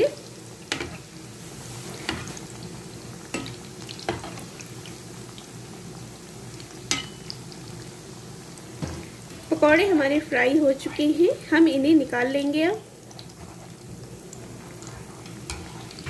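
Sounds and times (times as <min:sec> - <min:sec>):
food deep-frying in oil: 0:00.0 - 0:16.0
metal spoon clinking on pan: 0:06.9 - 0:07.3.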